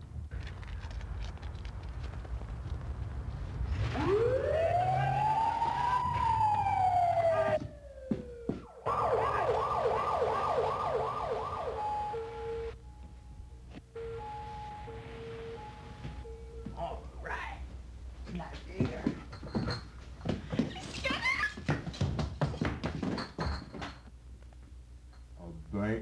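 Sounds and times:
police siren wailing and yelping: 0:03.8 - 0:12.8.

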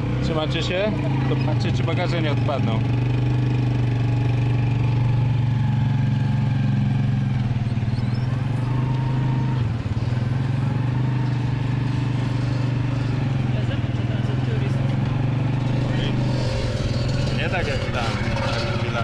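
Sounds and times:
motorcycle tuk-tuk engine droning: 0:00.0 - 0:19.0.

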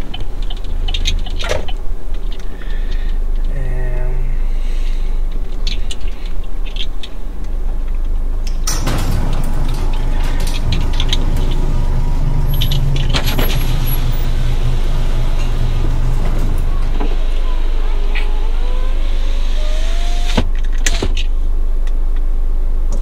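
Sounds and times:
car engine running: 0:08.7 - 0:20.8.

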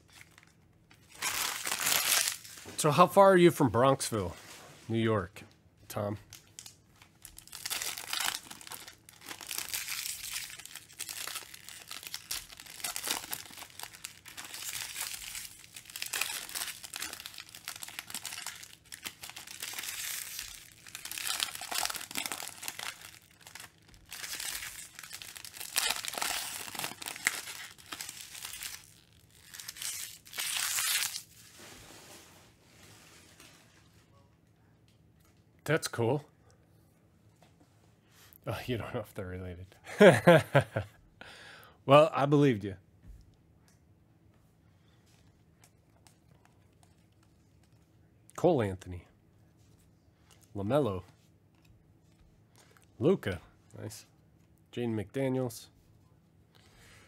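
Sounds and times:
foil wrappers tearing and crinkling: 0:00.0 - 0:02.8, 0:06.3 - 0:31.8.

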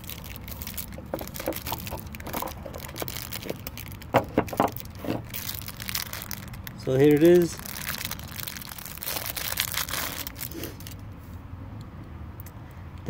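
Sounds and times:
plastic bag rustling: 0:00.0 - 0:11.0
cardboard box rustling: 0:00.3 - 0:05.7.

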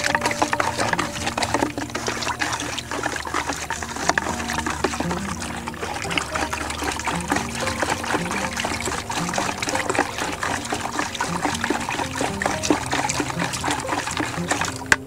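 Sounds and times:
stick scraping plastic bucket: 0:00.0 - 0:15.0
water swishing and sloshing: 0:00.0 - 0:15.0.

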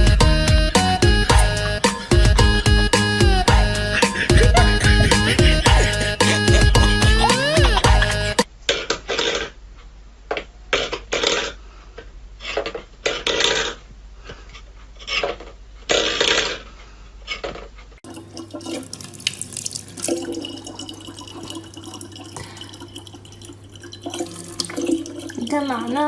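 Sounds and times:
tap water running into bottle: 0:18.0 - 0:25.8.

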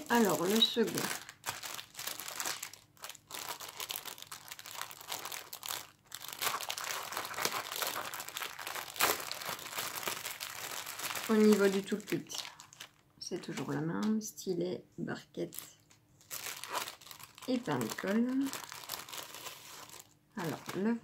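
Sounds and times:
plastic bag crinkling: 0:00.0 - 0:13.8, 0:15.4 - 0:21.0.

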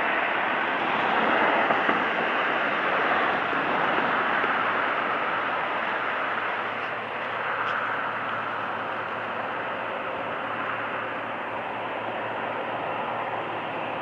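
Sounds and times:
diesel locomotive engines drone: 0:00.0 - 0:14.0.

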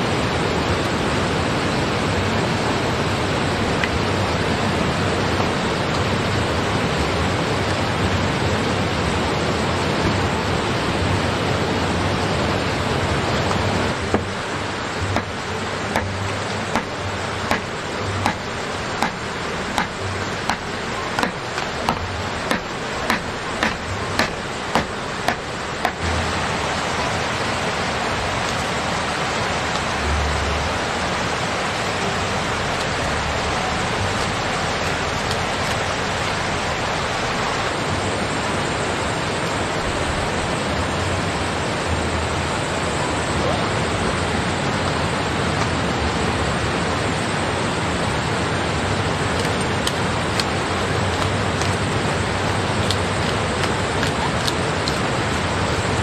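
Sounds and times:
steady rain: 0:00.0 - 0:56.0
knife chopping on wooden board: 0:15.9 - 0:19.2, 0:19.8 - 0:26.0.

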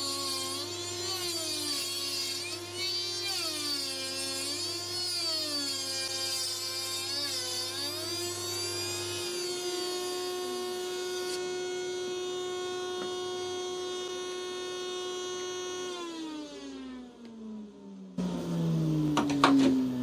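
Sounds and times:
router bit cutting wood: 0:00.0 - 0:17.4.

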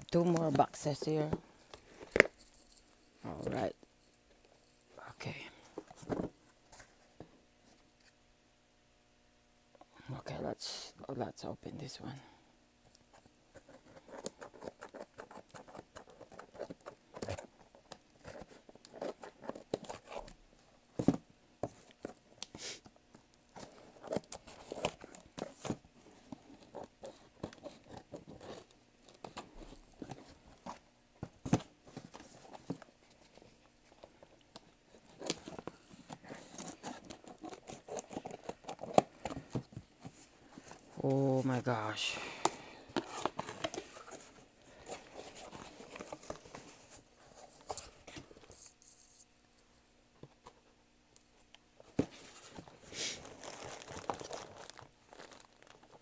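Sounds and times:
scissors cutting tape and cardboard: 0:36.3 - 0:39.4.

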